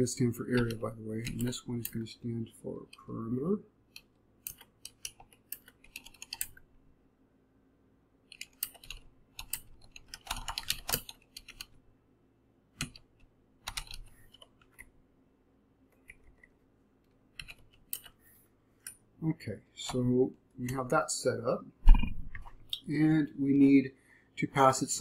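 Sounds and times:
typing on computer keyboard: 4.0 - 6.6, 8.3 - 11.8, 12.8 - 14.8, 17.4 - 18.2.

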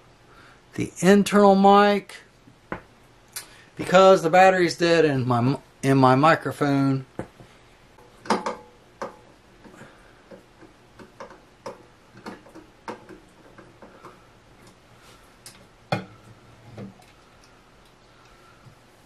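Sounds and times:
tool clicks and knocks on metal: 8.2 - 9.3.

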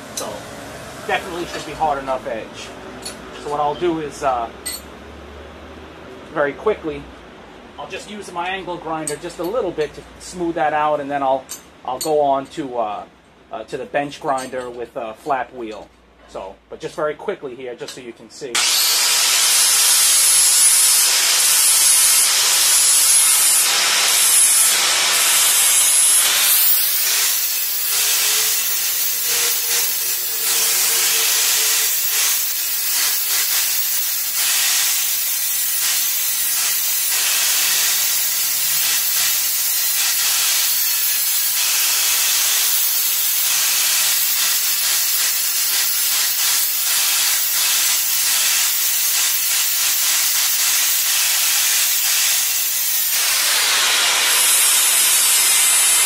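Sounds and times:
angle grinder grinding metal: 18.6 - 56.0.

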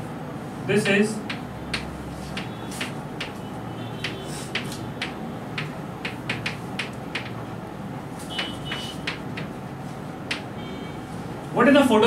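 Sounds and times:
chalk tapping and scratching on blackboard: 1.3 - 7.5, 8.2 - 9.6, 10.3 - 10.5.

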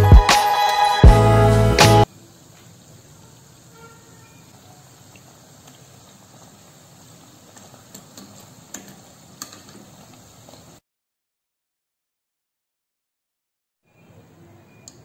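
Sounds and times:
food deep-frying in oil: 2.1 - 10.8
wire skimmer clicking on pot: 7.9 - 9.9.

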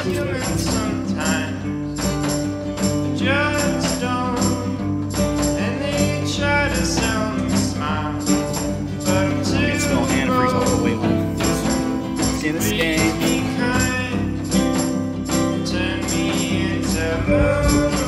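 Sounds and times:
song with singing voice: 0.0 - 1.9, 5.6 - 14.6
jingling percussion: 0.0 - 18.0
steady beat: 9.0 - 14.2.

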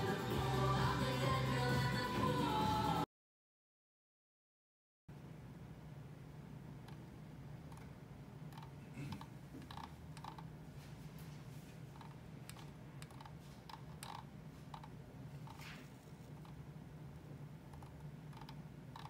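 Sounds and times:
steady low hum: 5.1 - 19.0.

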